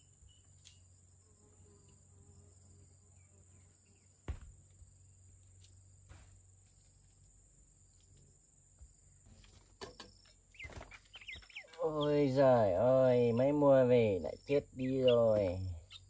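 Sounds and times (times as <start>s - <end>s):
wooden plank knock: 4.3s - 4.6s
insect trilling: 10.2s - 16.0s.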